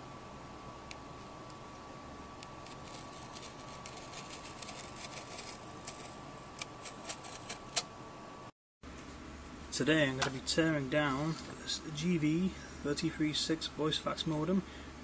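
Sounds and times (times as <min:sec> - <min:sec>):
knife blade scratching metal: 0:02.7 - 0:07.8
faint high whine: 0:09.1 - 0:15.0.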